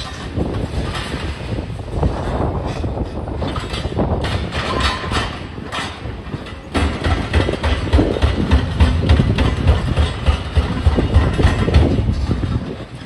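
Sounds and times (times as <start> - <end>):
diesel engines running: 0.0 - 13.0.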